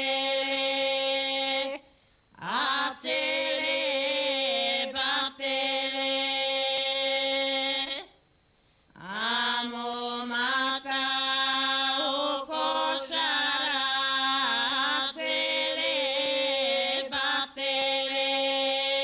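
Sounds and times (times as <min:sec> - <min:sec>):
voices singing a drone: 0:00.0 - 0:08.2, 0:09.0 - 0:19.0.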